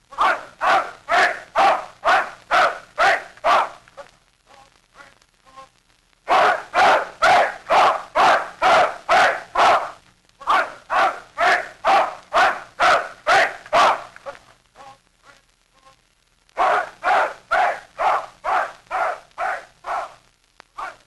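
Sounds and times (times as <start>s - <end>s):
dog barking: 0.2s - 3.8s, 6.3s - 9.9s, 10.5s - 14.0s, 16.6s - 20.2s, 20.8s - 21.0s.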